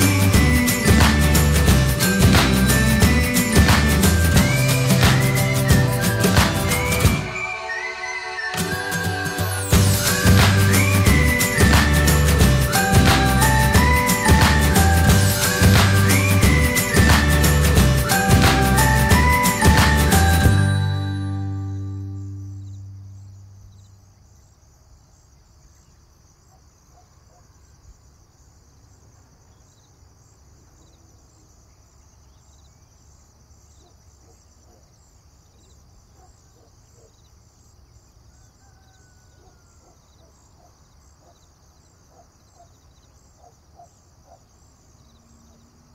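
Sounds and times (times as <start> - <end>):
music: 0.0 - 23.2
faint bird chirps: 33.7 - 45.9.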